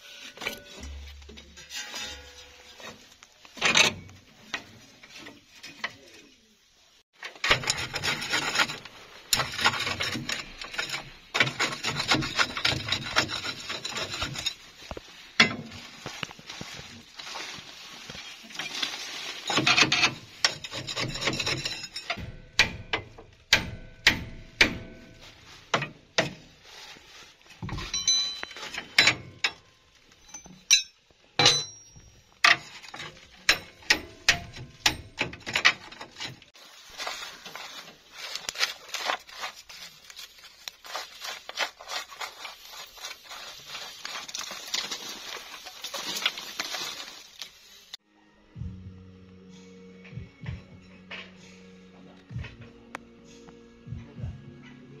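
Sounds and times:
metal tools scraping: 0.0s - 6.4s, 7.2s - 17.6s, 18.2s - 22.7s, 27.6s - 47.4s
metal clinks and knocks: 19.5s - 26.4s, 27.6s - 36.5s.

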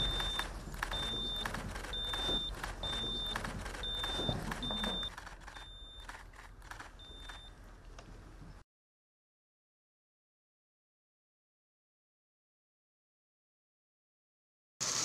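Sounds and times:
high electronic beep: 0.0s - 6.0s
camera shutters clicking: 0.0s - 7.5s.

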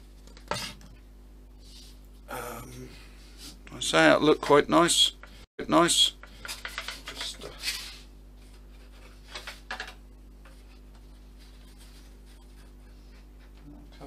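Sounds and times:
low mains hum: 0.0s - 14.0s
wooden parts rubbing and tapping: 6.0s - 7.9s, 8.8s - 12.6s.

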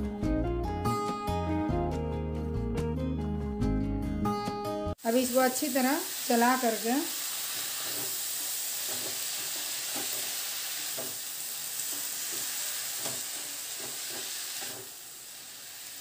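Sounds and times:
vegetables sizzling in hot oil: 5.0s - 16.0s
wooden spatula scraping vegetables: 7.5s - 15.0s.

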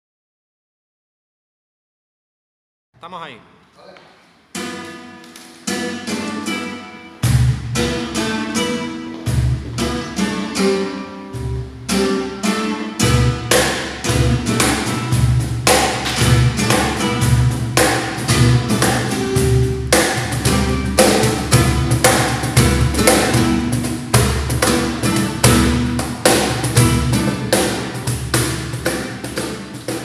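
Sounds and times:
flamenco guitar strumming: 4.5s - 30.0s
cajon slapped in time: 5.2s - 5.8s, 13.4s - 30.0s.

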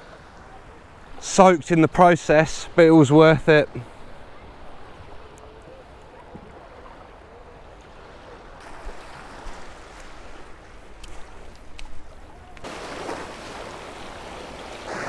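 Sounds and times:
small waves lapping on sand: 0.0s - 15.0s
light clicks and taps: 11.0s - 12.7s.

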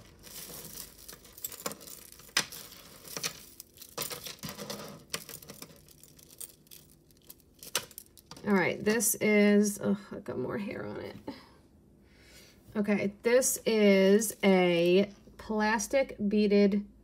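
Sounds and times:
chains and beads clinking: 0.0s - 8.7s.

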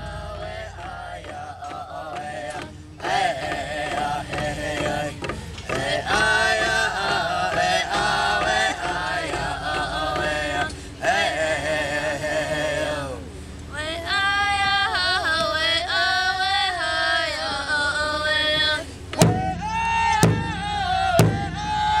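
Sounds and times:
large hide drum beating: 0.0s - 12.9s, 19.2s - 22.0s
group of voices chanting: 0.0s - 13.3s.

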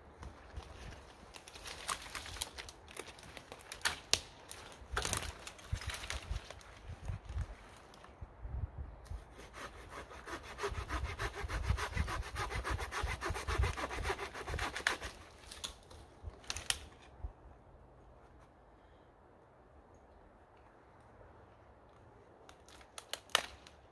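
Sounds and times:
hand saw cutting branch: 9.1s - 15.8s.

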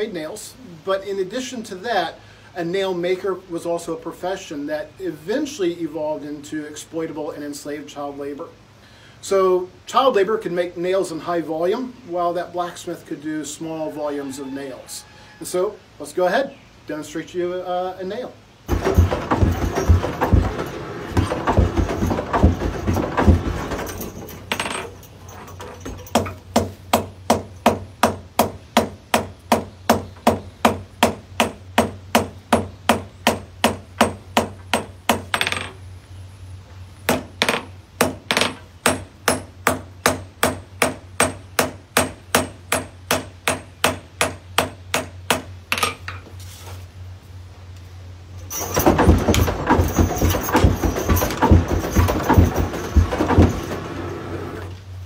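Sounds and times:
noisy clatter: 18.7s - 26.3s, 48.4s - 54.8s.

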